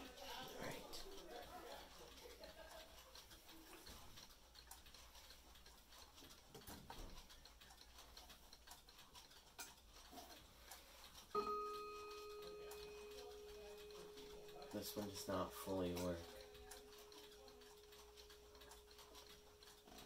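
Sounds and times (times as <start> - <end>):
faint clock ticking: 0.0 - 20.0
clock chime ringing: 11.3 - 20.0.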